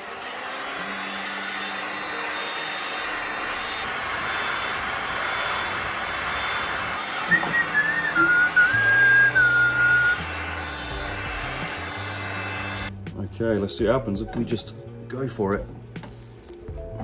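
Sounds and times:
heat gun fan blowing: 0.0 - 13.0.

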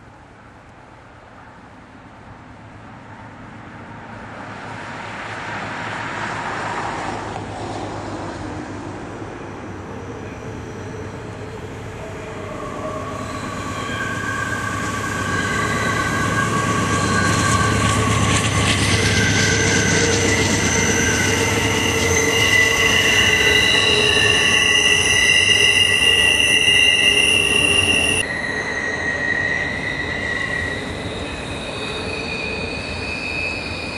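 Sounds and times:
low train rumble: 0.0 - 33.9
train wheels squealing: 9.1 - 33.9.

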